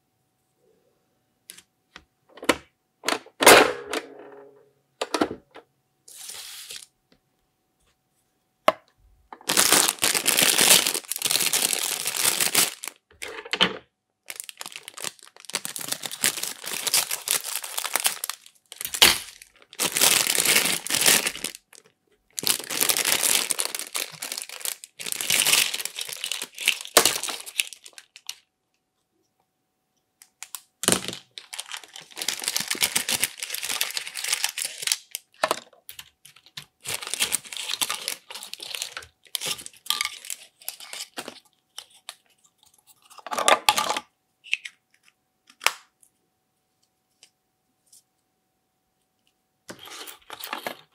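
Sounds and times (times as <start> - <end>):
plastic bag crinkling: 9.4 - 13.0, 14.3 - 28.4, 30.4 - 42.3.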